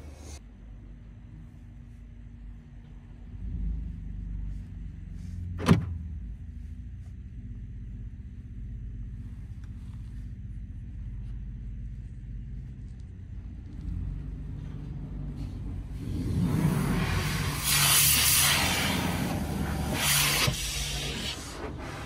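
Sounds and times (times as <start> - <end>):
low steady hum: 0.0 - 17.6
pressure washer spray on window: 17.2 - 21.3.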